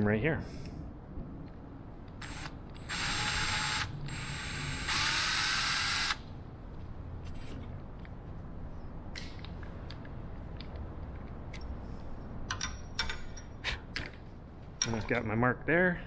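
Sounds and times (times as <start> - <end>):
electric drill whining: 2.2 - 6.2.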